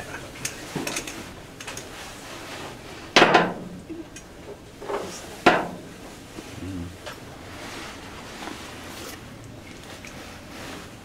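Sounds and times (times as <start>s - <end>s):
sharp knocks and clanks: 3.2s - 3.7s, 4.8s - 5.8s.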